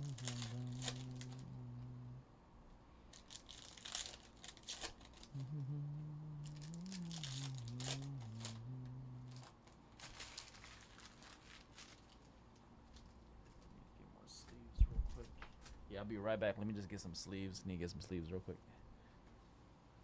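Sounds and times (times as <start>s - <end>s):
person humming a tune: 0.0s - 2.2s, 5.2s - 9.6s.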